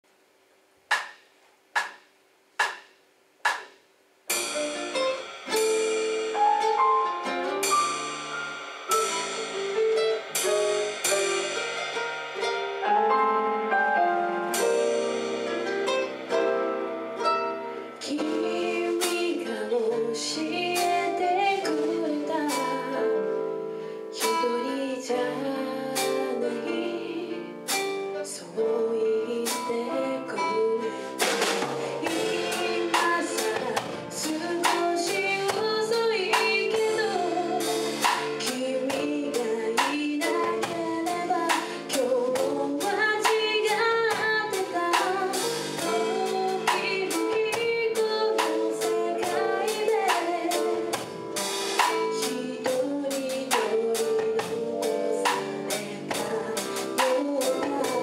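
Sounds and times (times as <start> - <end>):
live band playing slow song: 4.3 - 58.0
woman singing: 17.9 - 58.0.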